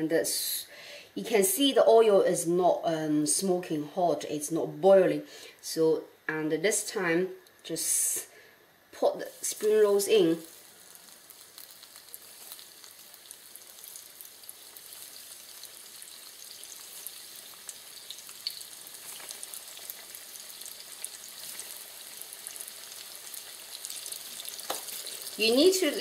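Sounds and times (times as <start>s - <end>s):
spring rolls sizzling in oil: 9.2s - 26.0s.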